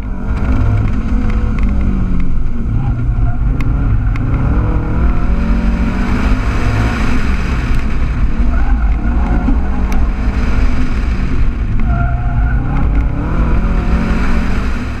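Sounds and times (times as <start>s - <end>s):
car engine pulling hard: 0.0s - 15.0s
wind rumble on microphone: 0.0s - 15.0s.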